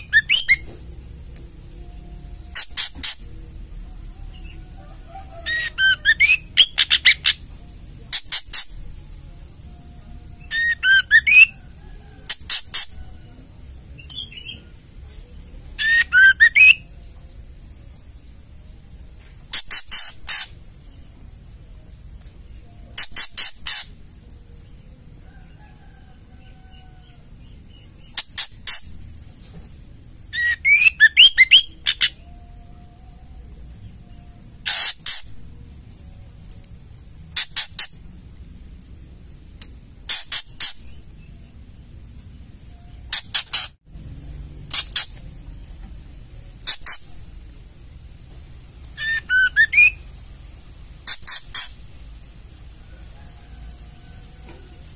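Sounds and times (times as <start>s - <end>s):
bird whistled notes: 0.0s - 0.7s, 5.3s - 7.4s, 10.4s - 11.6s, 15.8s - 16.9s, 30.3s - 32.4s, 49.0s - 50.0s.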